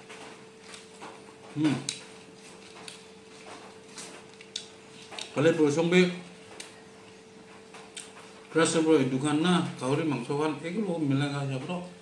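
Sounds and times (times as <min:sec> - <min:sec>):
eating by hand: 0:00.6 - 0:05.4, 0:06.4 - 0:08.5.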